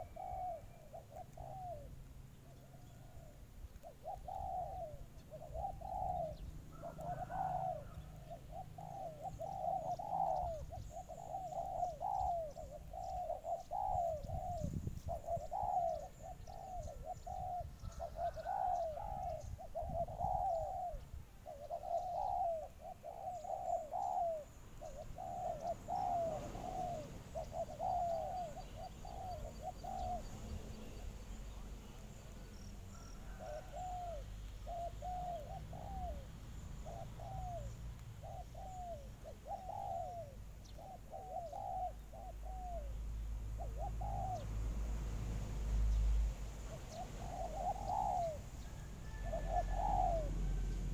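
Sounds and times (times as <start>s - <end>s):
dove cooing rapidly: 0.0s - 31.0s, 33.0s - 44.9s, 46.6s - 50.9s.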